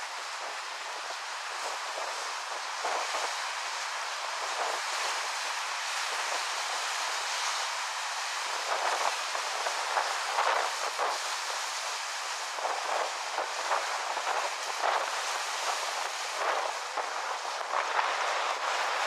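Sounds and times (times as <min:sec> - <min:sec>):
wind rushing through grass and leaves: 0:00.0 - 0:19.0
wind gusts buffeting microphone: 0:08.4 - 0:19.0.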